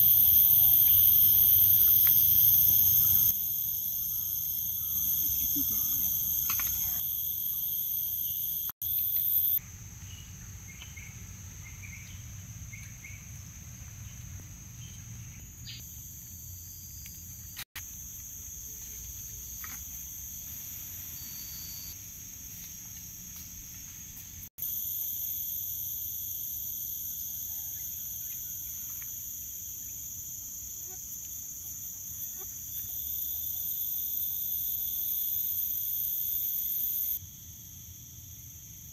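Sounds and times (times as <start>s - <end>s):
high-pitched insect buzzing: 0.0s - 9.6s, 31.9s - 37.2s
soft insect hum: 0.0s - 38.9s.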